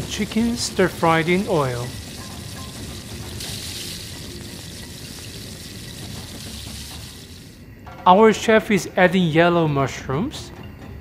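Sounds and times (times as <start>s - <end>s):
water pouring into hot wok: 0.0s - 7.6s.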